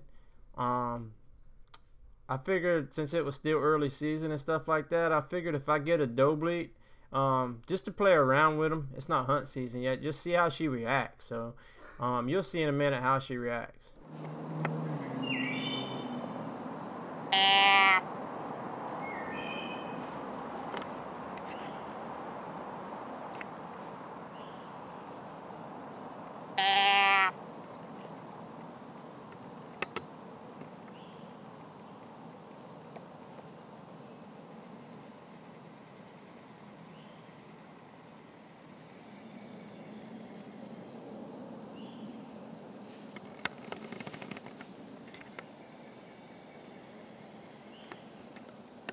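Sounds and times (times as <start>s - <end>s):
insects chorus: 14.0s - 48.9s
deer call bleats: 17.3s - 18.2s, 26.5s - 27.6s.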